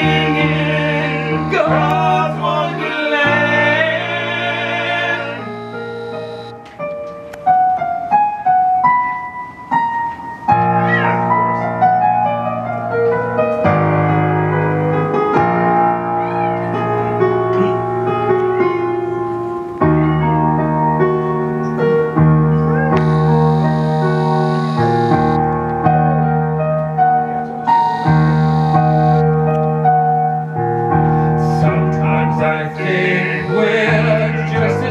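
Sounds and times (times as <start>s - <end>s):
electronic keyboard piano: 0.0s - 34.9s
bass line: 22.9s - 25.4s, 27.8s - 29.3s.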